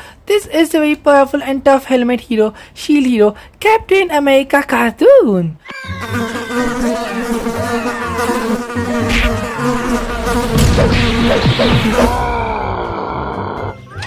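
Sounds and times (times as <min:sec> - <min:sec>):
steady buzzing drone: 0:06.7 - 0:12.2.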